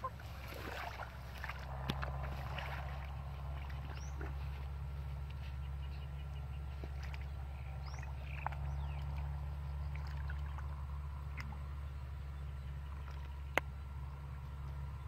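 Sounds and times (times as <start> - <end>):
hands digging in mud and water: 0.0 - 5.7, 6.6 - 11.7
steady low hum: 0.0 - 15.0.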